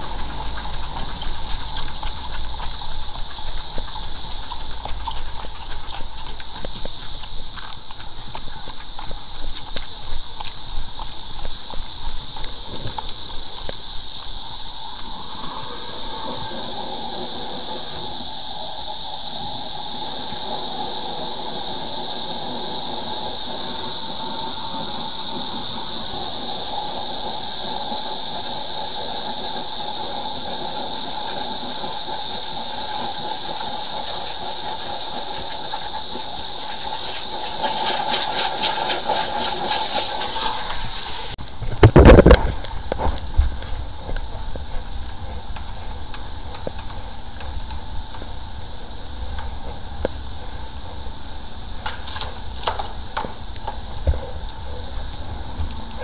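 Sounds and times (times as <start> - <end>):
hiss of water jetting: 0.0 - 56.0.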